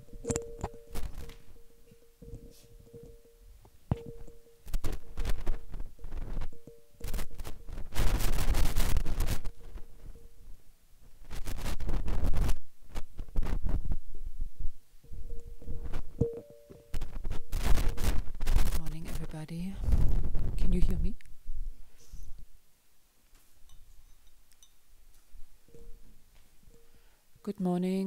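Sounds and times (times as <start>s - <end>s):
faint steady hum: 0.0s - 28.0s
scraping and rustling against mic: 3.9s - 21.0s.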